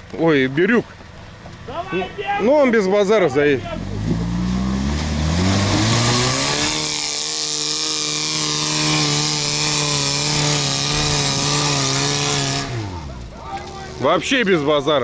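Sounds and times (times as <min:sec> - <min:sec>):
vehicle engine revving: 0:03.3 - 0:15.0.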